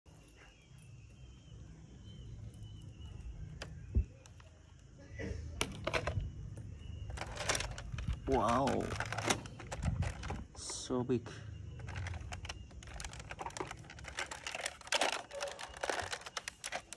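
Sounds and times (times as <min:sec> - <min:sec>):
faint bird chirps: 0:00.1 - 0:05.6, 0:06.2 - 0:14.6
wind rumble on microphone: 0:03.8 - 0:04.2.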